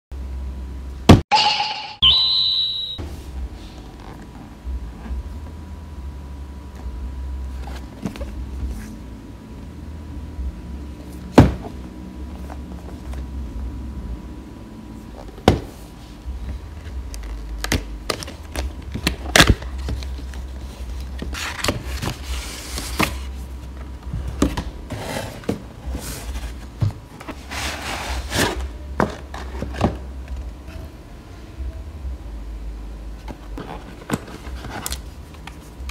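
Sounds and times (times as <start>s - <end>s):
packaging rustling and scraping: 16.8s - 30.0s, 33.2s - 35.9s.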